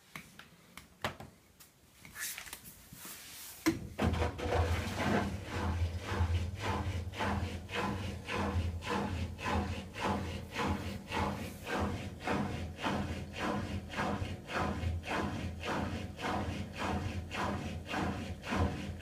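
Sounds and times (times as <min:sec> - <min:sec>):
clothes swishing in drum: 0:02.1 - 0:03.6
drum motor humming: 0:04.0 - 0:19.0.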